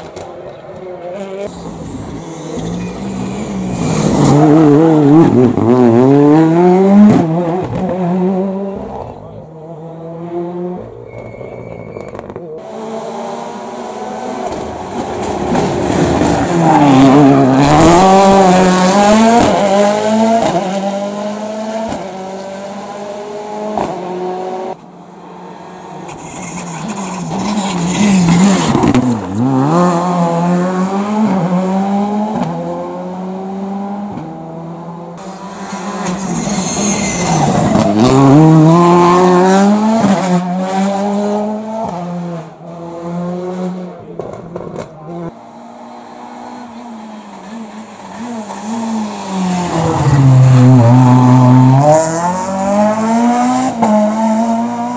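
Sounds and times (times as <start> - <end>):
rally car engines revving: 0.0 - 54.9
tyre squeal: 1.5 - 4.4, 11.0 - 12.4, 35.6 - 38.1.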